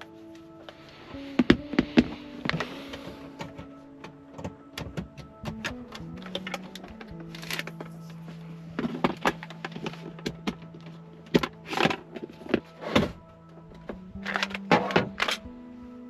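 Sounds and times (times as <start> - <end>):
handling clicks and knocks: 3.3 - 8.0, 8.8 - 12.7.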